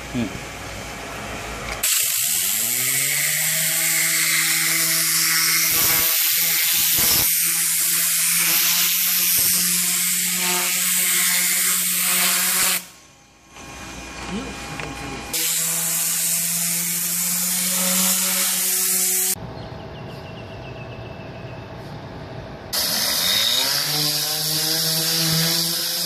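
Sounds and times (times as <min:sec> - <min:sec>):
compressed air gun hissing: 0:05.0 - 0:12.9.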